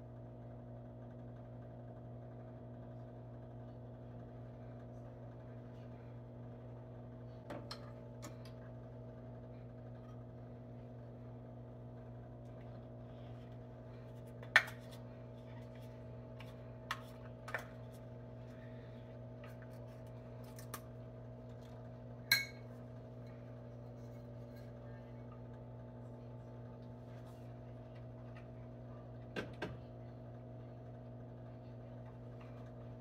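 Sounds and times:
steady low hum: 0.0 - 33.0
glass bowl clinking: 22.3 - 22.7.

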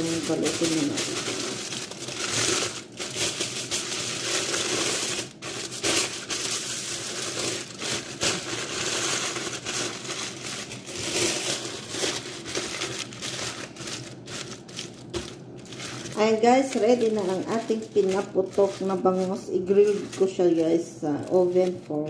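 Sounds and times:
aluminium foil crinkling: 0.0 - 22.0.

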